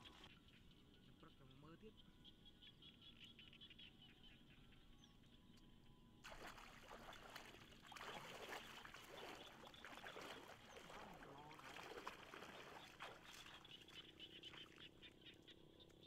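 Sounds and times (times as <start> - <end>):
hands splashing in shallow water: 6.2 - 14.8.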